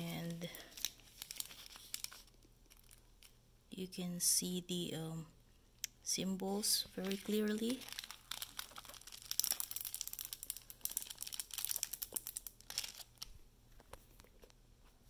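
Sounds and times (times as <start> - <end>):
plastic film crinkling: 0.0 - 3.4, 6.6 - 13.3.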